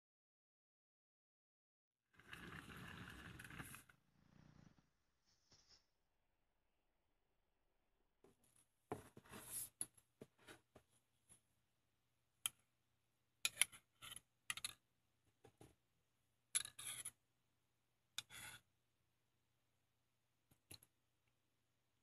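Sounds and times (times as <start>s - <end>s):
bowl and spoon clicking and scraping: 13.5s - 14.8s, 16.5s - 17.2s.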